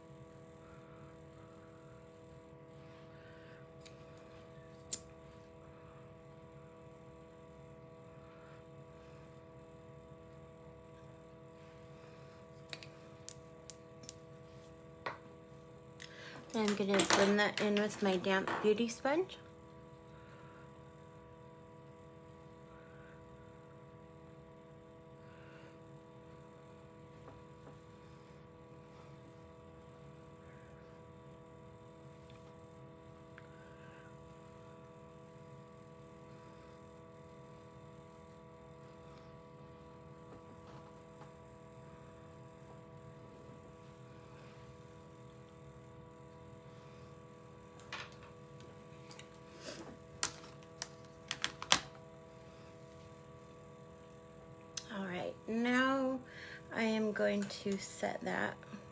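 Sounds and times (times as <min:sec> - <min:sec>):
steady electrical hum: 0:00.0 - 0:58.9.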